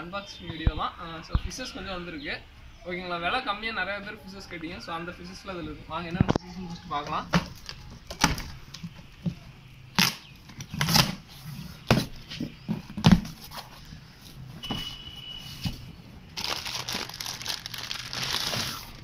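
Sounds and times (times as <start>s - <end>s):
packing tape being cut: 10.0s - 11.3s, 16.4s - 19.0s
plastic bags crinkling: 16.3s - 19.0s.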